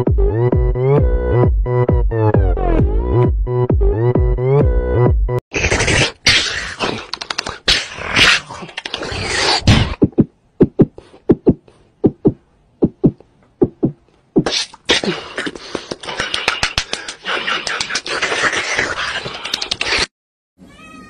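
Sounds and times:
man beatboxing into microphone: 10.0 - 20.1.

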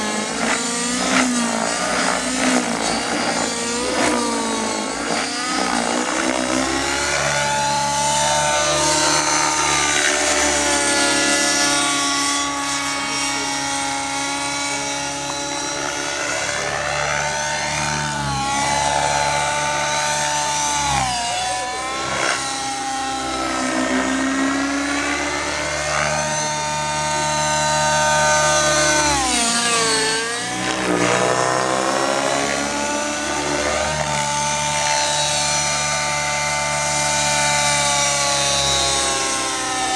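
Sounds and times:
model helicopter engine and rotors whining: 0.0 - 39.9.

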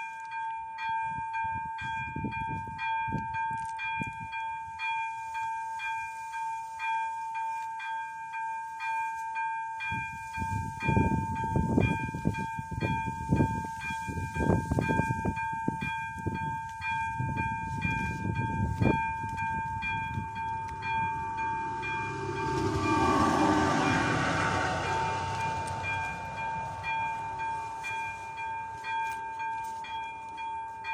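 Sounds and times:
level crossing warning bell: 0.0 - 30.9
low rumbling: 19.7 - 28.8.

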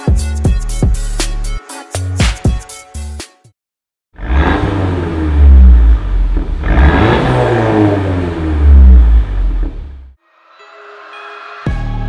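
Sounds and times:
car engine and exhaust rumble: 4.2 - 10.2.

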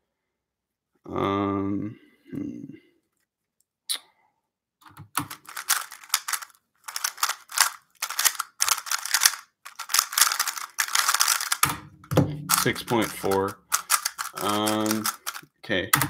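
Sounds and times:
puzzle cube turning clicks: 5.0 - 11.8, 12.5 - 16.0.

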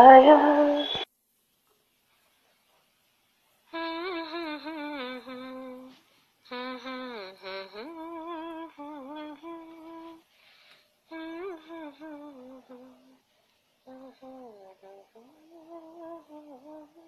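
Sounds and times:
person humming: 3.7 - 10.2, 11.1 - 13.2, 13.9 - 17.0.

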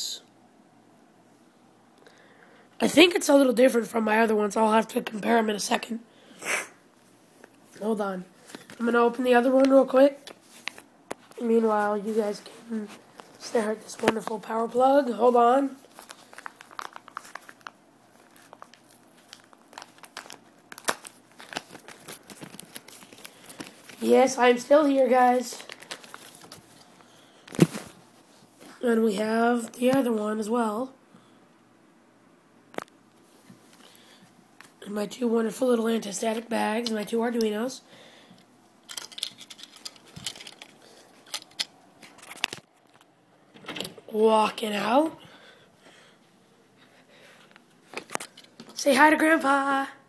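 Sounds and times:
plastic bag crinkling: 15.6 - 28.1, 38.9 - 43.1.

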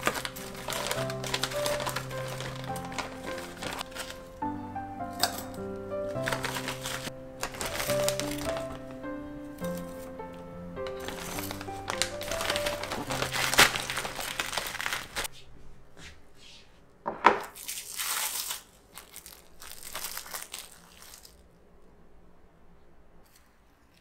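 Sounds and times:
plastic bag crinkling: 0.0 - 4.4, 5.2 - 9.0, 10.8 - 15.3, 17.5 - 21.5
soft background music: 0.0 - 15.3.

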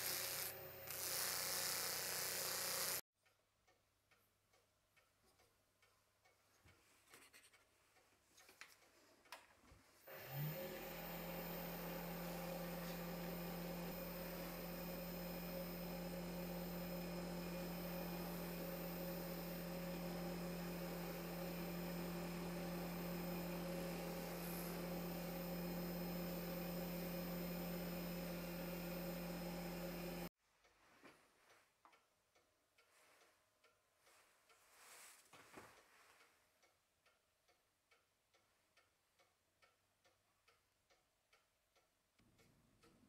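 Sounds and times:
rotary tool humming: 0.0 - 3.0, 10.1 - 30.3.

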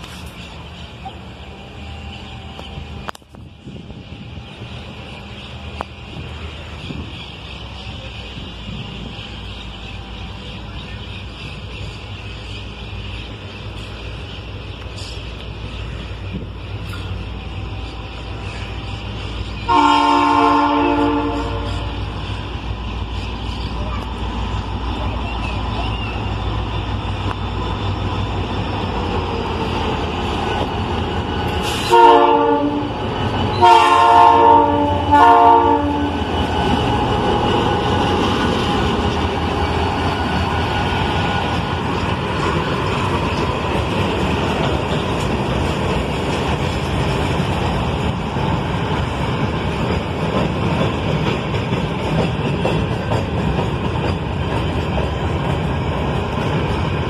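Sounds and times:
train wheels clacking on rails: 2.1 - 57.0
locomotive air horn blasts: 19.7 - 22.0, 31.7 - 32.9, 33.6 - 36.2.

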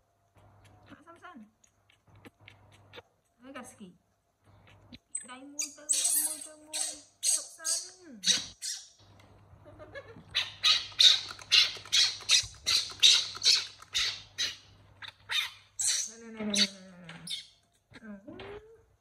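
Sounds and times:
baby monkey screaming: 5.1 - 9.0, 10.3 - 17.6.

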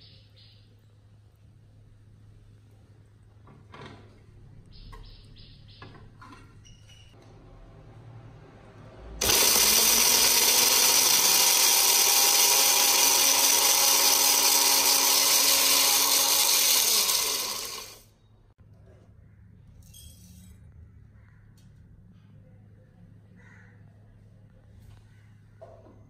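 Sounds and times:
blender motor chopping: 9.2 - 18.1.

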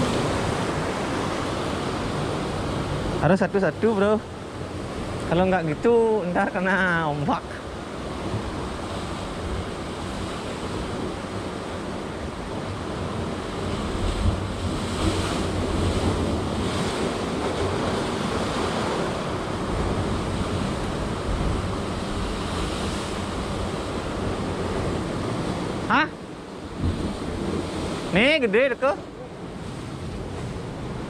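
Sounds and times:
surf breaking over rocks: 0.0 - 7.0, 8.2 - 26.0.

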